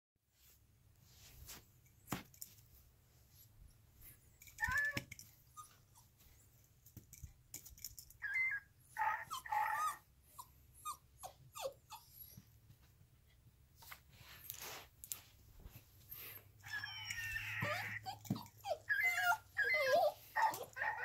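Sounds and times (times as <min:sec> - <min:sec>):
dog whining yips: 0:04.5 - 0:06.1, 0:08.2 - 0:12.4, 0:16.6 - 0:21.0.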